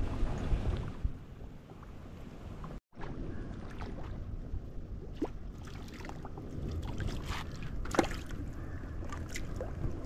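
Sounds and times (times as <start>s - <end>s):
river water lapping on stone: 2.6s - 10.0s.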